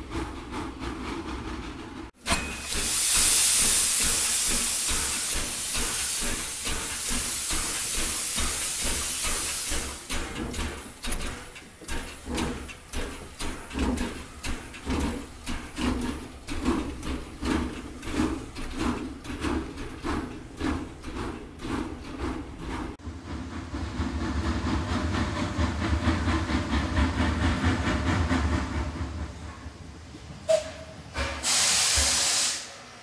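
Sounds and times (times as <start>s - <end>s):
steam hissing: 2.3s - 22.6s, 30.5s - 33.0s
locomotive exhaust chuffs: 2.6s - 29.7s.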